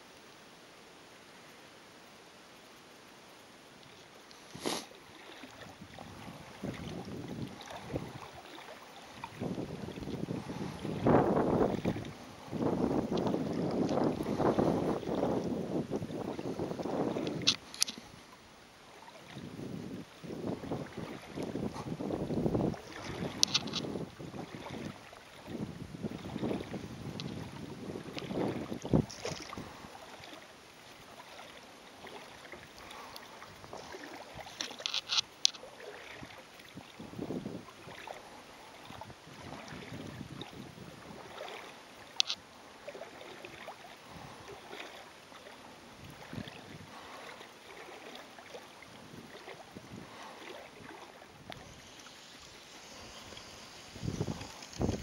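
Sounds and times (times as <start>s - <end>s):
small waves lapping: 0.0s - 55.0s
wind on microphone: 5.6s - 8.4s, 9.2s - 18.2s, 19.3s - 30.0s, 36.2s - 38.1s, 38.8s - 41.4s, 46.0s - 47.2s, 49.1s - 55.0s.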